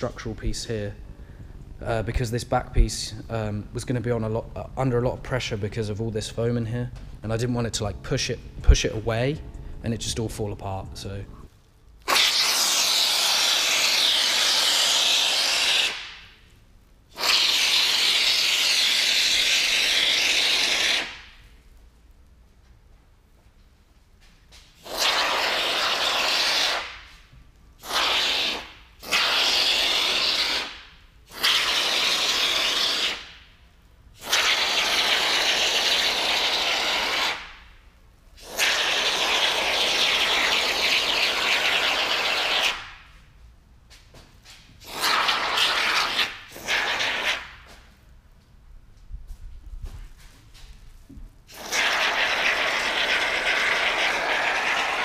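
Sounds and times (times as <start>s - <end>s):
spray foam can hissing: 12.1s - 16.4s, 17.1s - 21.4s, 24.8s - 33.4s, 34.2s - 37.6s, 38.4s - 43.1s, 44.8s - 47.9s, 51.5s - 55.0s.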